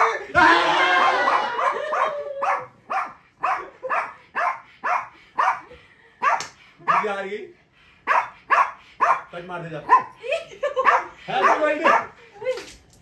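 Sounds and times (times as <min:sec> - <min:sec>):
voices shouting: 0:00.0 - 0:02.6
dog barking: 0:01.2 - 0:07.2, 0:08.1 - 0:10.1, 0:10.8 - 0:12.2.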